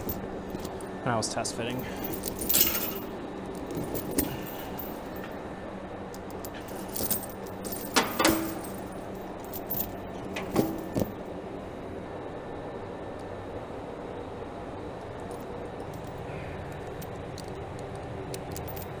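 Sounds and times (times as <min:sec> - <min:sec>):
faint steady hum: 0:00.0 - 0:19.0
chain links clinking: 0:01.8 - 0:05.4, 0:06.2 - 0:11.2, 0:18.4 - 0:19.0.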